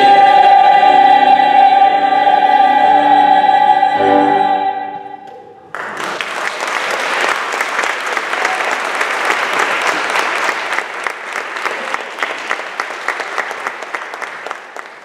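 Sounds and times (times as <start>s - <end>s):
audience applauding: 5.7s - 15.0s.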